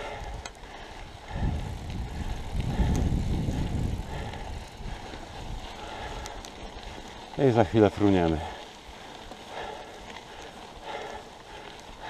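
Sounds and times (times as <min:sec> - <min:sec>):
rushing air: 0:00.0 - 0:06.4
bike tyres rumbling on dirt: 0:00.0 - 0:12.0.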